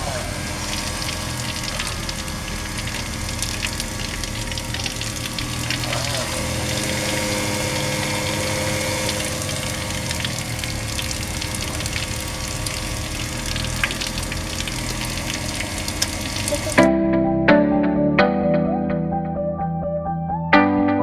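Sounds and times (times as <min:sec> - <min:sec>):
water splashing into basin: 0:00.0 - 0:16.8
motor hum: 0:00.0 - 0:16.9
plucked guitar music: 0:16.5 - 0:21.0.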